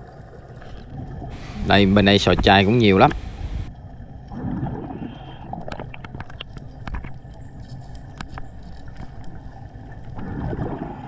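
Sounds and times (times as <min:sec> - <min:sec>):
underwater low rumble and hiss: 0:00.0 - 0:11.0
diver exhaling bubbles: 0:04.3 - 0:06.0, 0:10.1 - 0:11.0
sharp clicks underwater: 0:04.3 - 0:11.0.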